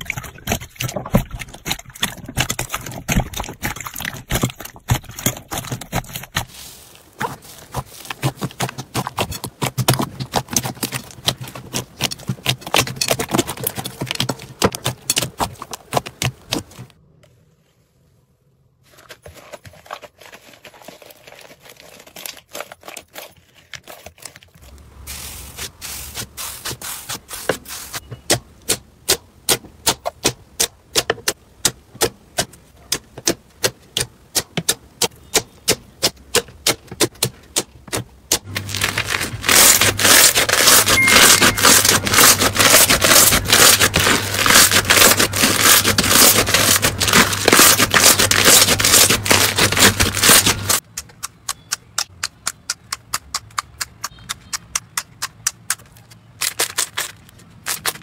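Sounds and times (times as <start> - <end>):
slime crackling: 38.4 - 58.0.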